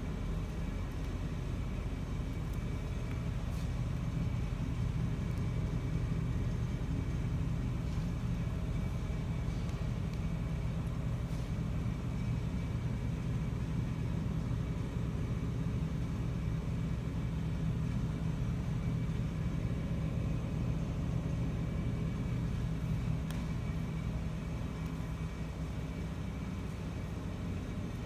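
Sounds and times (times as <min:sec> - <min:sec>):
low rumbling hum: 0:00.0 - 0:28.0.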